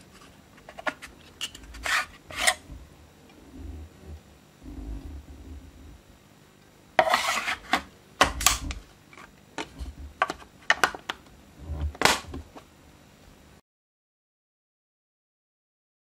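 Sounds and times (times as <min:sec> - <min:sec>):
plastic scrape: 0:00.0 - 0:06.0, 0:07.0 - 0:11.0, 0:11.6 - 0:12.6.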